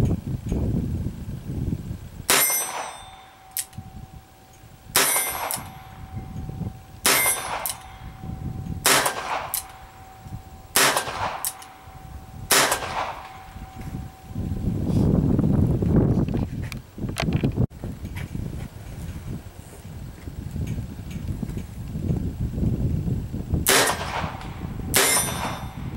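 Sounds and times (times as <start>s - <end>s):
revolver shots: 7.0s - 10.1s, 10.8s - 14.1s.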